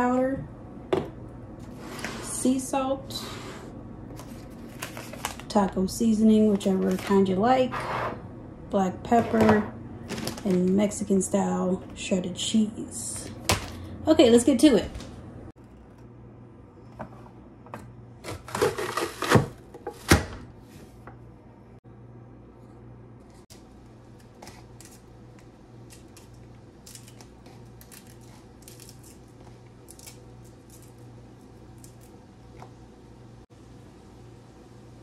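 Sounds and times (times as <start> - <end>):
clicks and rustles of vegetables: 4.1 - 5.6, 10.0 - 11.0, 23.3 - 32.8.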